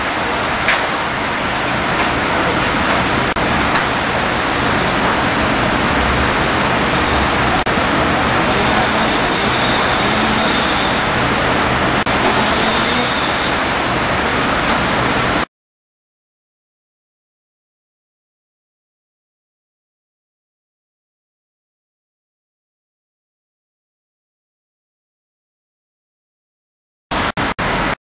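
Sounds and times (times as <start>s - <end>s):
fire engine drone: 0.0s - 15.5s, 27.1s - 28.0s
loud even hiss: 3.2s - 15.5s.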